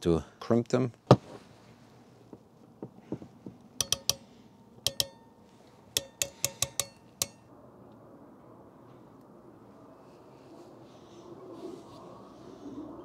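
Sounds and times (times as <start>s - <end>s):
crimping tool metallic clicks: 3.8s - 4.3s, 4.9s - 7.5s.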